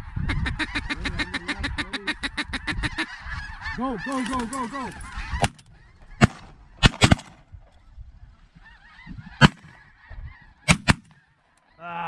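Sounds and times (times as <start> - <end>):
snow geese calling: 0.0 - 7.2, 7.8 - 12.0
shotgun shots: 6.2 - 7.4, 9.4 - 9.7, 10.7 - 11.1.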